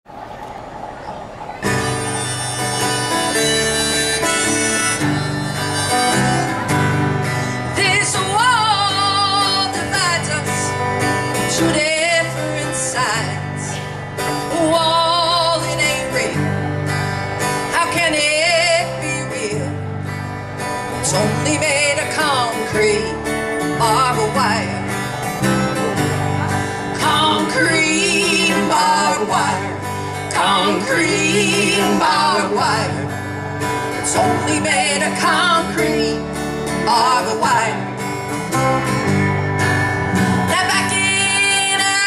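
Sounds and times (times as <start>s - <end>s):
wavering lead melody: 0.1s - 11.5s
strummed guitars: 0.1s - 42.0s
upright bass: 1.7s - 42.0s.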